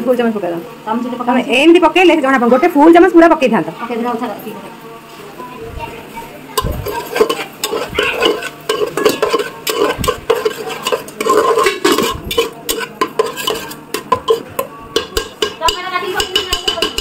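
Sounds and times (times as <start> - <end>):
spatula scraping a metal pot: 6.6 - 17.0
metal clicking on pot: 6.8 - 17.0.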